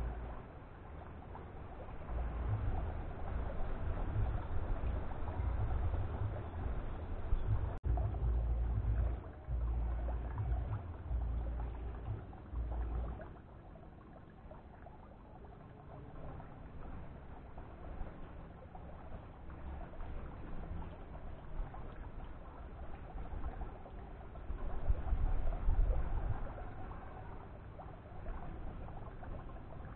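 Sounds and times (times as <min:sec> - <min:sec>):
wind buffeting microphone: 0:00.0 - 0:14.2, 0:19.6 - 0:29.9
faint outdoor background: 0:00.0 - 0:29.9.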